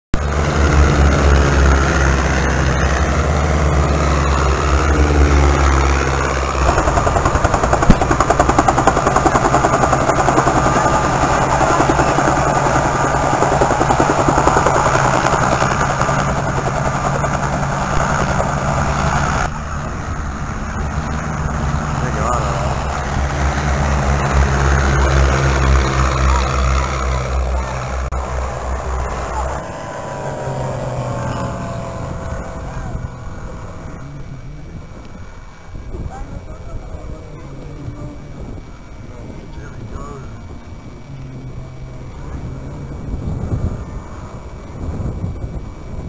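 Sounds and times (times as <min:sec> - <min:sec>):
biplane engines passing: 0:00.1 - 0:46.0
helicopter blade chop: 0:00.2 - 0:33.1.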